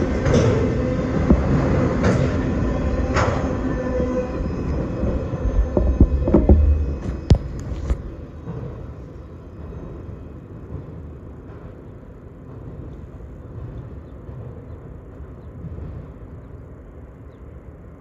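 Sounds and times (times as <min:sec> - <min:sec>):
freight train rumbling: 0:00.0 - 0:18.0.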